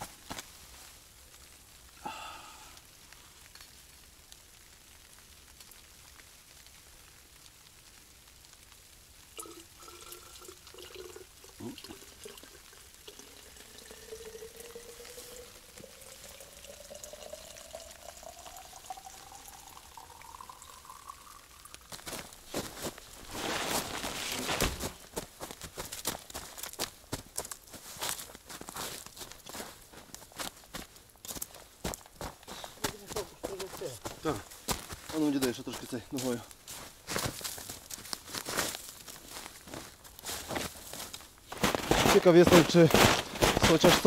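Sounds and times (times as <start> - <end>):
liquid pouring into vessel: 9.4 - 24.2.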